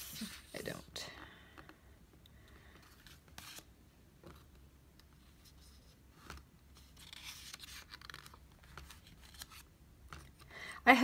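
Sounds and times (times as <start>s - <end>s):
paper pages rustling: 0.0s - 0.8s, 2.8s - 4.5s, 5.1s - 10.5s.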